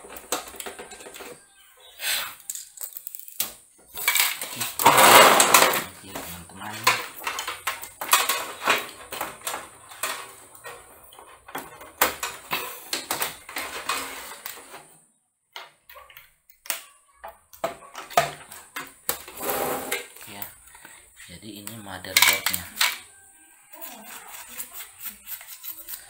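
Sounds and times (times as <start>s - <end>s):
clicks and metallic clatter: 2.4s - 14.8s.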